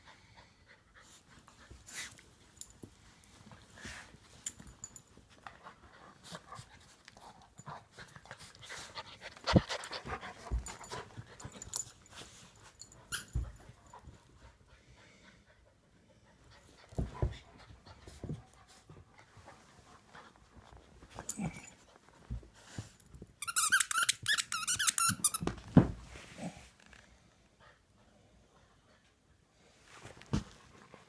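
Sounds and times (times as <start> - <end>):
dogs panting: 4.8 - 21.9.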